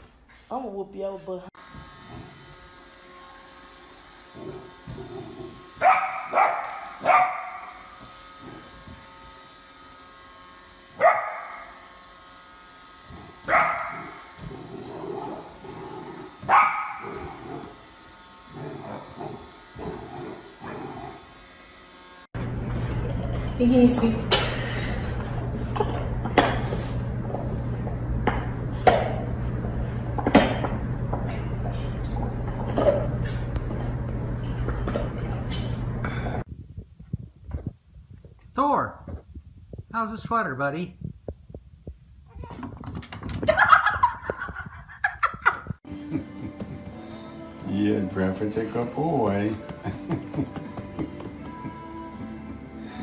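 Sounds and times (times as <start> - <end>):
steady low hum: 1.6 - 42.7
puppy barking: 5.8 - 7.9, 11.0 - 11.8, 13.5 - 14.2, 16.4 - 17.4.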